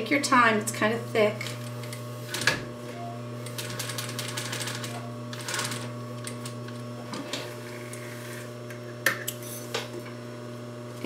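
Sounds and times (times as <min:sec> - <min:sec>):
electrical hum: 0:00.0 - 0:11.0
sewing machine stitching: 0:03.5 - 0:06.5.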